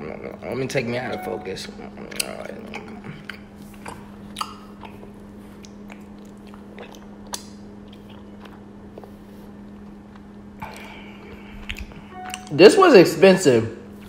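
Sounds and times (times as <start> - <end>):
steady low hum: 0.0 - 14.0
sticky mouth clicks and smacks: 2.1 - 8.6, 10.1 - 12.5.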